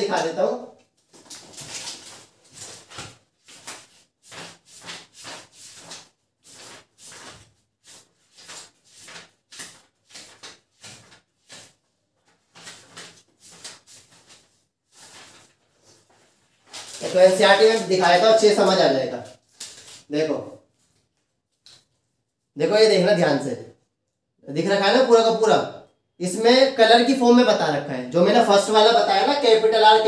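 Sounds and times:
book pages rustling: 0.8 - 20.1.

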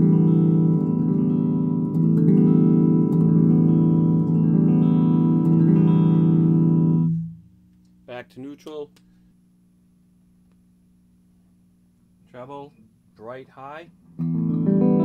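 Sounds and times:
electric guitar strumming chord: 0.0 - 7.4, 14.2 - 15.0.

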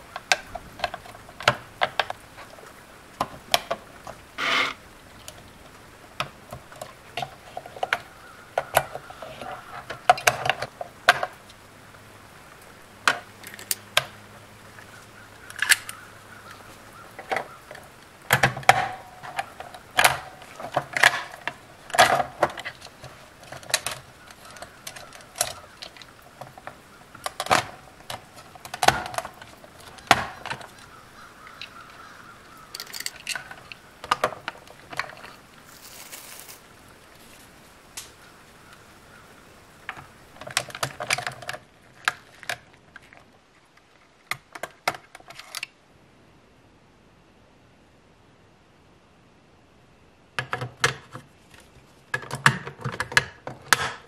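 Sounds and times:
plastic toy parts clicking: 32.7 - 34.4.

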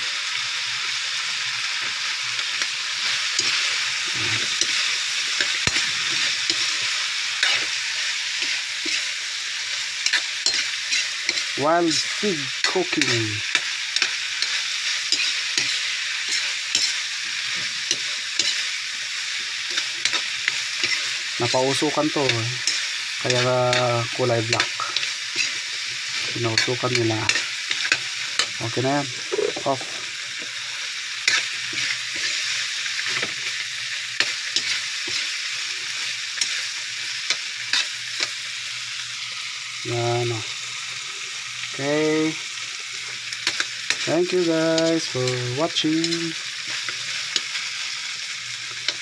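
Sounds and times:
meat sizzling in a wok: 0.0 - 49.0
spatula scraping a pan: 2.6 - 38.4
metal utensil clinking on pan: 10.1 - 11.4.

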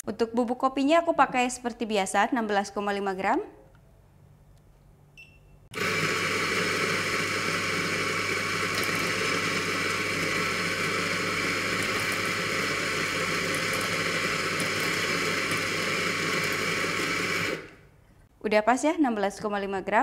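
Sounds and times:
short electronic beep: 5.2 - 5.7
coffee grinder running: 5.8 - 17.8.

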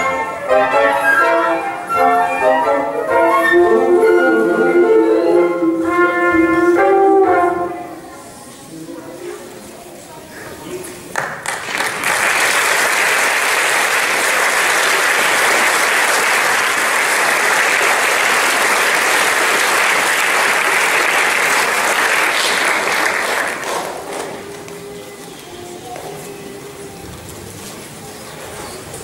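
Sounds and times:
audience applauding: 11.1 - 24.9.

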